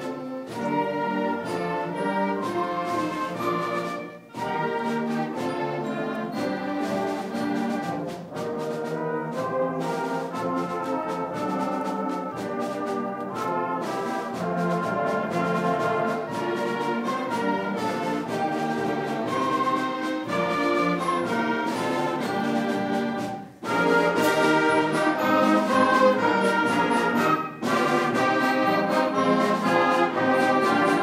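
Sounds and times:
brass and tubas: 0.0 - 31.0
concert band playing a march: 0.0 - 31.0.

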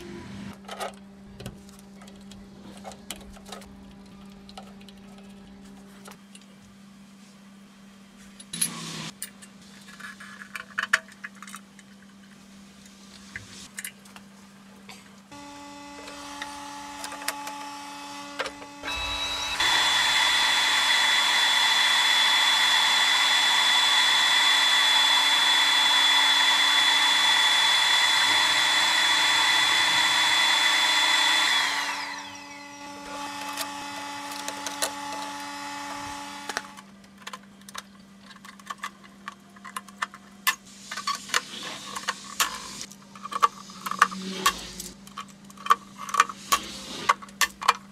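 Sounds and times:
machine hum: 14.9 - 37.3
high whining machine run: 15.3 - 36.8.

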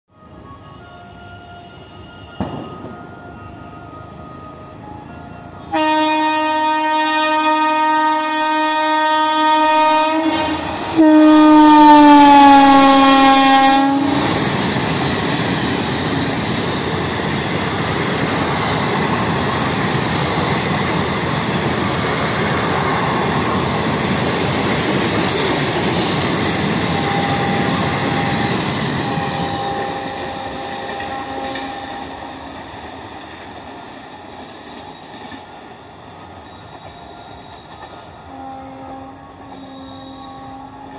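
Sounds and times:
train coaches rushing past: 0.1 - 40.9
locomotive horn blasts: 5.6 - 14.6, 26.7 - 32.4, 38.3 - 40.9.

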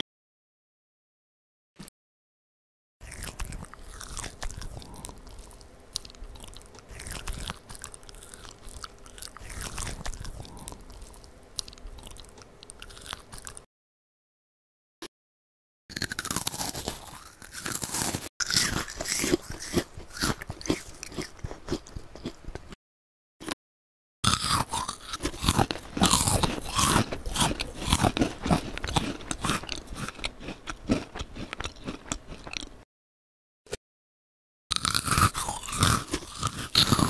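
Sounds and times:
crunching meringue cookies: 3.0 - 13.7, 15.9 - 22.8, 24.2 - 32.7, 34.7 - 37.0.

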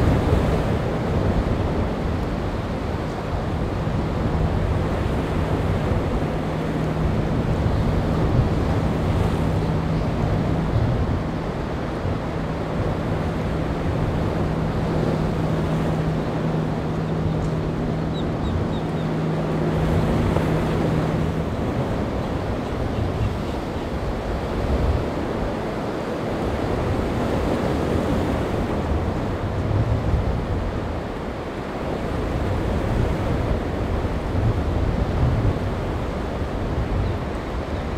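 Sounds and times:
boat engine hum: 0.0 - 37.9
waves and surf washing: 0.0 - 37.9
wind buffeting microphone: 0.0 - 37.9.

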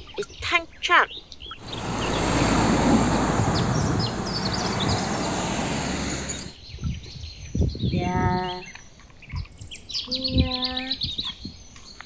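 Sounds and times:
truck engine and tyre noise: 1.6 - 6.6.

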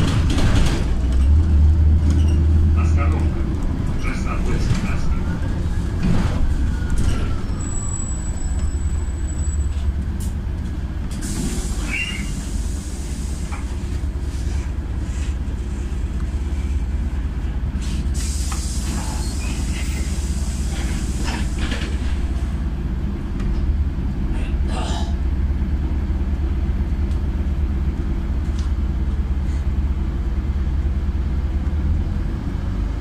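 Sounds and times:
bus engine rumble: 0.0 - 33.0
air brake hisses: 11.2 - 13.6, 17.8 - 21.5.

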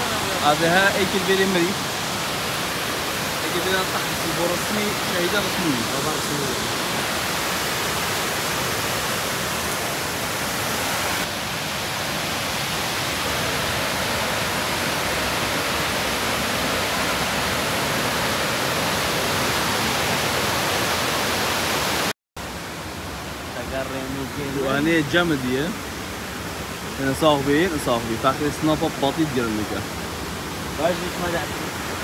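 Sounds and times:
waterfall rushing over rocks: 0.0 - 32.0.

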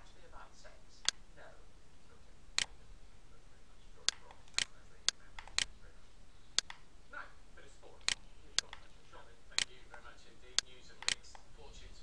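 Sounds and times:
computer mouse clicking: 4.0 - 5.7, 6.5 - 6.9, 8.0 - 8.9, 10.5 - 11.5.

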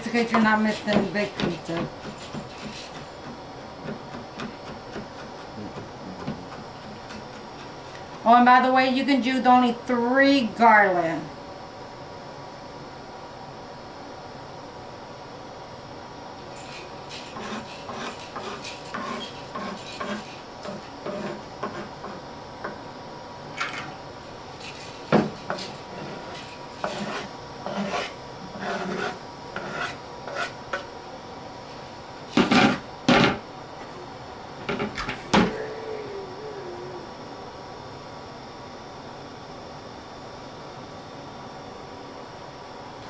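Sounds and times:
knife chopping on cutting board: 0.9 - 7.7.

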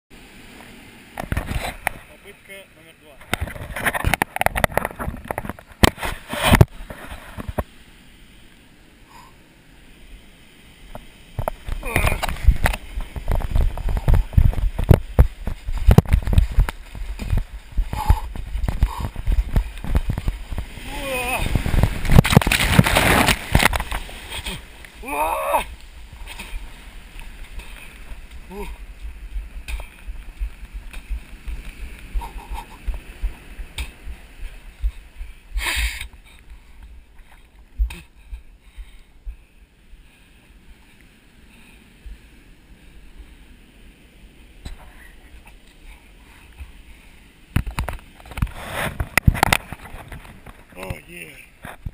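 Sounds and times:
muffled water churning: 3.2 - 50.8
rushing water surge: 9.0 - 36.8
breaking surf: 10.0 - 38.1.

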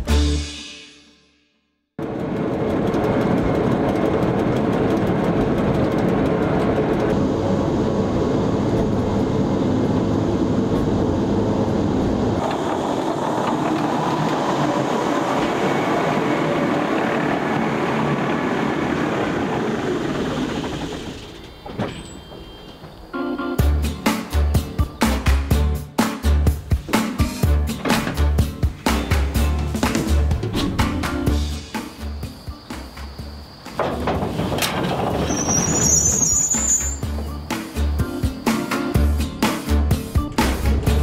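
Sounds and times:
rack railcar gearing noise: 2.0 - 41.0.

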